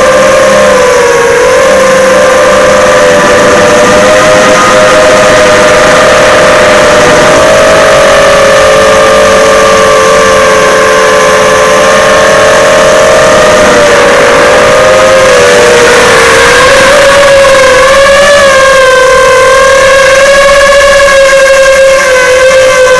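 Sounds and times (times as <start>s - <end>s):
drone motors whining: 0.0s - 22.9s.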